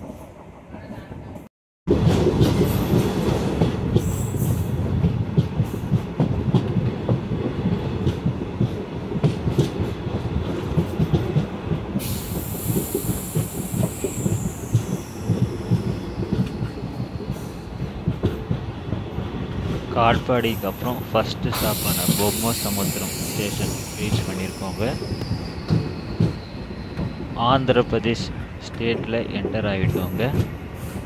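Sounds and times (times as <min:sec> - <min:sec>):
train wheels rumbling on track: 0:00.0 - 0:31.0
high hiss: 0:20.6 - 0:27.0
falling whine of train braking: 0:20.6 - 0:28.1.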